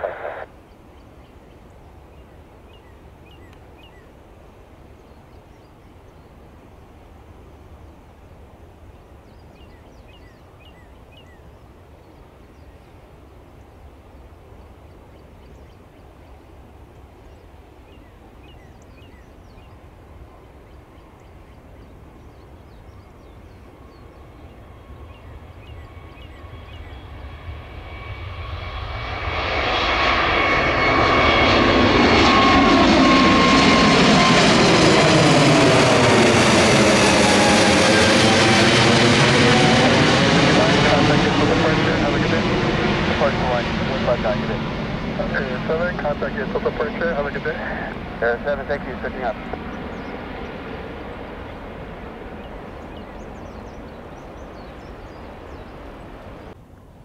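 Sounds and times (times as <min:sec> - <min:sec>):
jet airliner taking off: 0:00.0 - 0:00.6, 0:23.6 - 0:56.6.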